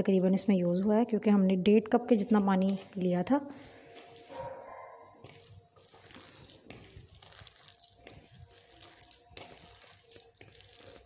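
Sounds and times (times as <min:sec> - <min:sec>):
hand squishing thick batter: 0:02.1 - 0:11.0
soft scrapes in plastic bowl: 0:02.7 - 0:11.0.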